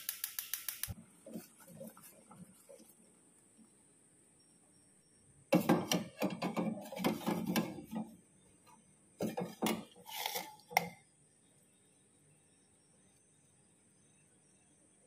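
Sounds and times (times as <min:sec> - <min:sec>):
metal ladle scraping metal pot: 0:05.6 - 0:08.1, 0:09.2 - 0:11.0.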